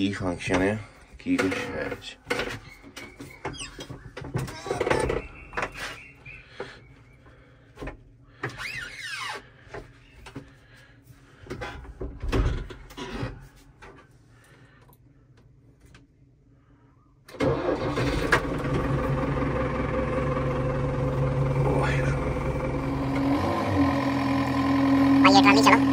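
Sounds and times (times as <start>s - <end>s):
tractor diesel engine starting and idling: 17.3s - 25.9s.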